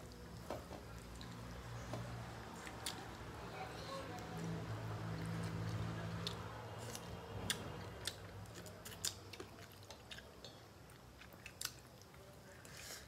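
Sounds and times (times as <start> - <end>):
chewing and mouth smacks: 2.6 - 3.2, 5.1 - 12.8.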